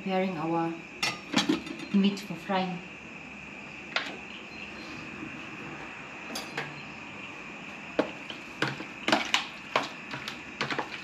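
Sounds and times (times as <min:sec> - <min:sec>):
steady background hiss: 0:00.0 - 0:11.0
utensils and dishes clinking: 0:01.0 - 0:02.0, 0:06.3 - 0:06.8.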